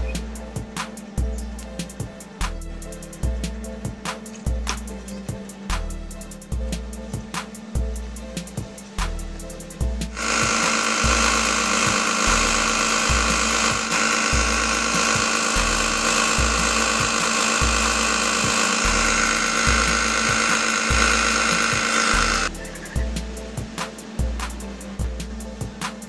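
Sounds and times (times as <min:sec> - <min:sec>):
music with bass beat: 0:00.0 - 0:26.0
belt sander sanding wood: 0:10.0 - 0:22.5.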